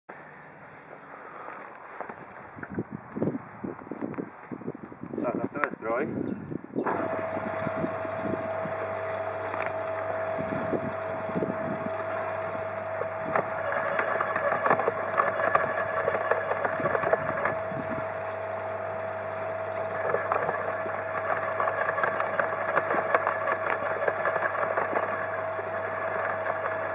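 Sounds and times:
garden shredder whining: 6.8s - 26.9s
wood crackling and snapping: 8.8s - 26.9s.

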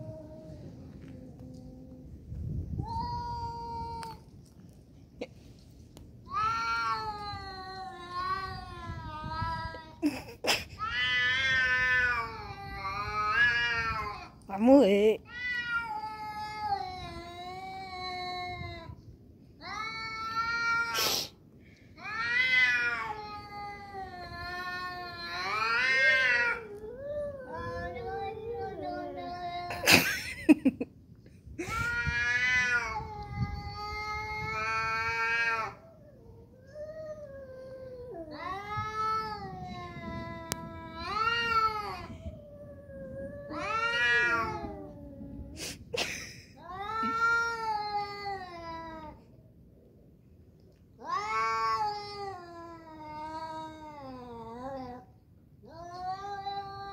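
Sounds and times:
cats yowling: 6.3s - 9.9s, 10.8s - 14.4s, 15.3s - 18.9s, 22.0s - 29.9s, 31.6s - 45.9s, 51.0s - 56.9s
cat hissing: 20.9s - 21.4s, 45.5s - 46.0s.

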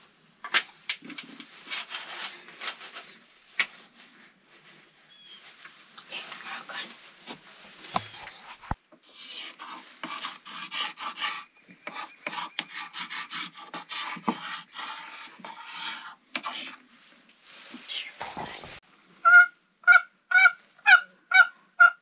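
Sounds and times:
scraping on wooden box call: 7.9s - 16.9s.

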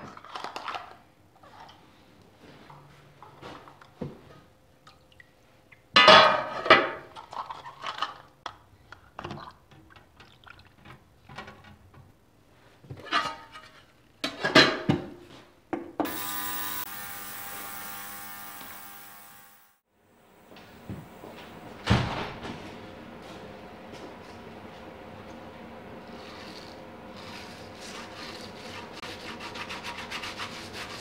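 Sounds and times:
ultrasonic cleaner buzzing: 16.0s - 29.0s.

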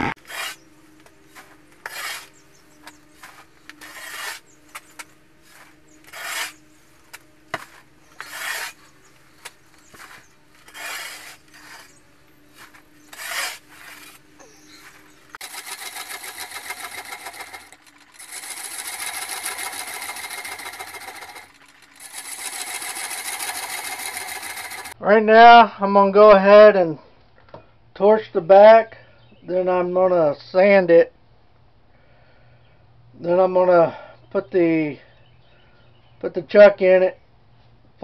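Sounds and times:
turning tool scraping wood on lathe: 0.0s - 25.0s.

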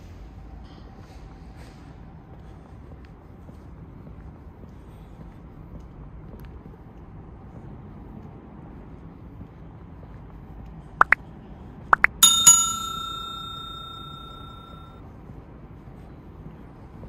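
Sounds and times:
bicycle bell ringing: 12.1s - 14.9s.

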